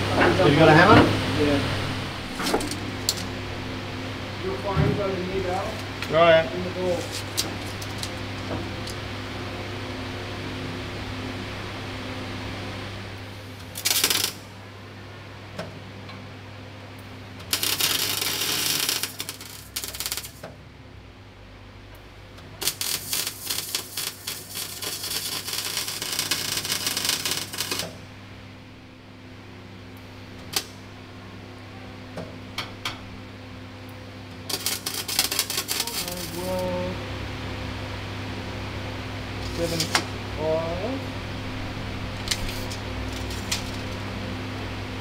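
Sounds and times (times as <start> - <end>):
steady low hum: 0.0 - 45.0
arc welding crackling: 1.4 - 3.5, 4.4 - 9.2, 12.9 - 14.6, 17.0 - 20.6, 22.4 - 28.1, 29.8 - 30.9, 34.3 - 37.2, 39.2 - 44.8.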